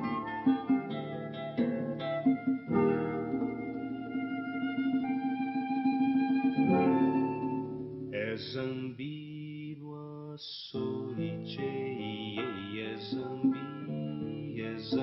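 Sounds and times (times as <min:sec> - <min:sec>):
classical guitar playing: 0:00.0 - 0:09.3, 0:10.8 - 0:15.0
man singing wordlessly: 0:08.2 - 0:15.0.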